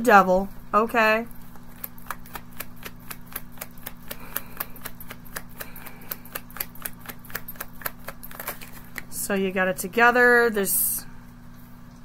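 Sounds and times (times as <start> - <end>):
cards being shuffled: 1.4 - 9.2.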